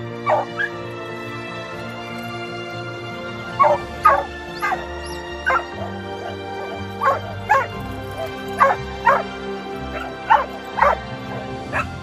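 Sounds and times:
background music: 0.0 - 12.0
puppy yapping: 3.6 - 9.3.

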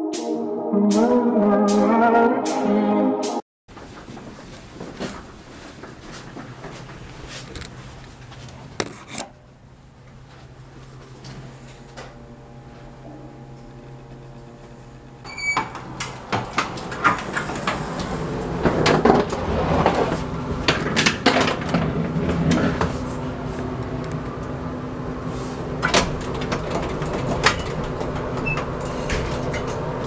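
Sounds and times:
people moving and rustling: 3.7 - 8.8
steady hum: 8.6 - 19.4
elevator chime: 12.3 - 16.2.

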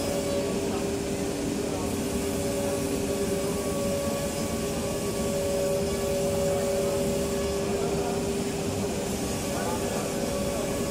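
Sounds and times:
factory machinery humming: 0.0 - 10.9.

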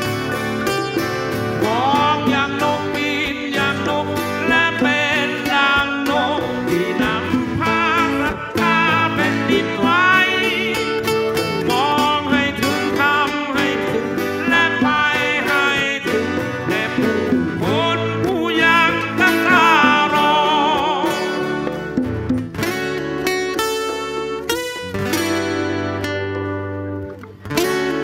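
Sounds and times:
man singing: 0.0 - 22.3
strummed acoustic guitars: 0.0 - 28.0.

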